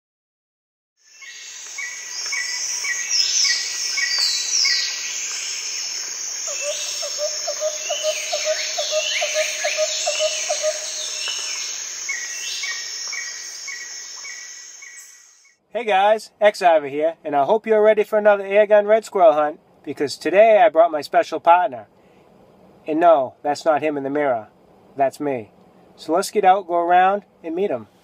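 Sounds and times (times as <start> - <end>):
birds chirping: 1.0 - 15.5
insect drone: 1.0 - 15.6
low repeated bird call: 1.0 - 15.6.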